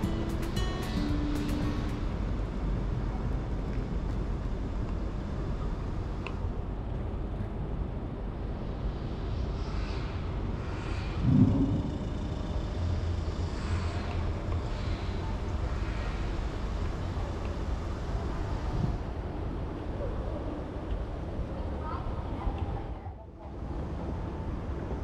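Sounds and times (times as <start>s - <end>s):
low thump: 11.2s - 12.0s.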